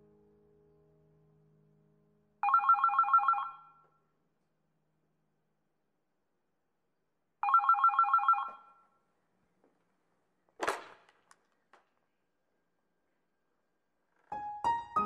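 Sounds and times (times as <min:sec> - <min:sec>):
telephone ringing trill: 0:02.4 - 0:03.8, 0:07.4 - 0:08.8.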